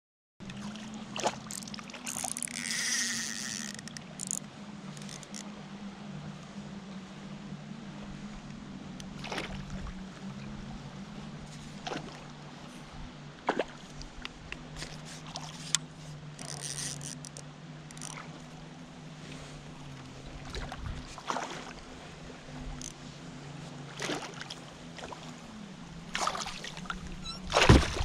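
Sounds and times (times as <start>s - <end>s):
fish thrashing and water splashing: 0.4s - 4.4s, 9.1s - 9.8s, 11.8s - 12.3s, 20.4s - 21.8s, 23.9s - 25.4s, 26.1s - 28.0s
steady low hum: 0.4s - 28.0s.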